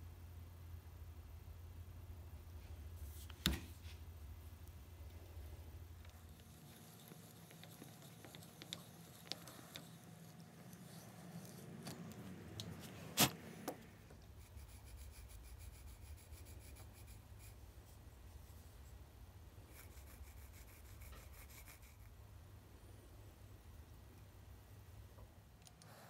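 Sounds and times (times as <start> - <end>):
pencil scratching on wood: 6.1 - 12.1, 14.2 - 17.6, 19.7 - 22.1.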